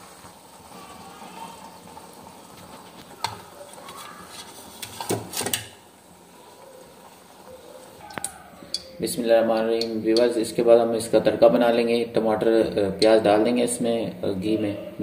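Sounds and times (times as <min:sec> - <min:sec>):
low steady hiss: 0:04.6 - 0:15.0.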